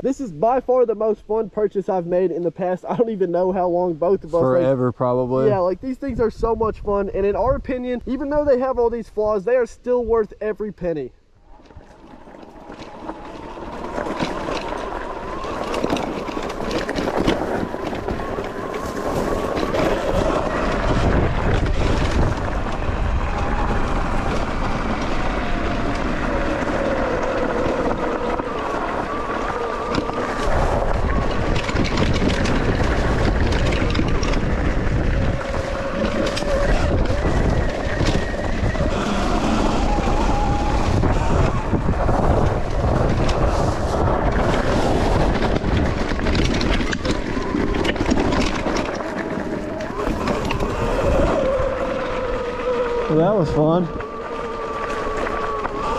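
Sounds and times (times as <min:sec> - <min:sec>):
wind buffeting microphone: 0:03.7 - 0:09.4, 0:11.4 - 0:55.9
electric motor whine: 0:11.4 - 0:55.9.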